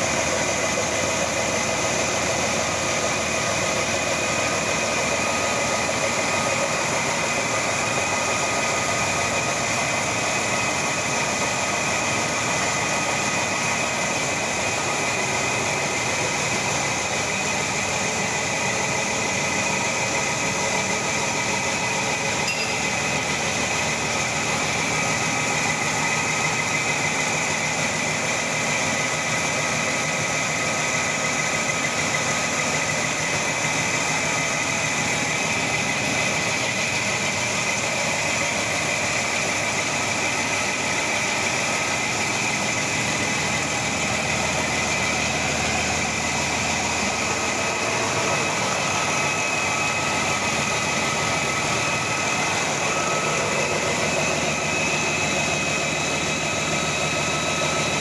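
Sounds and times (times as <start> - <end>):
diesel engine idling: 0.0 - 58.0
steady high whine: 13.5 - 27.9, 41.8 - 58.0.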